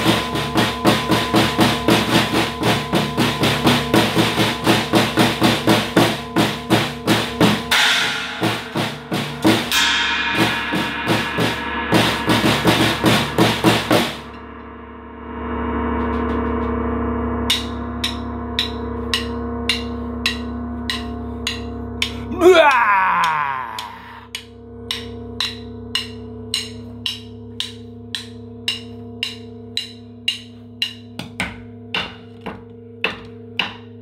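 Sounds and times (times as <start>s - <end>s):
snare drum strokes: 0.0s - 14.4s
metallic ringing: 0.0s - 22.3s, 24.3s - 34.0s
low sustained hum: 6.2s - 22.4s, 24.2s - 34.0s.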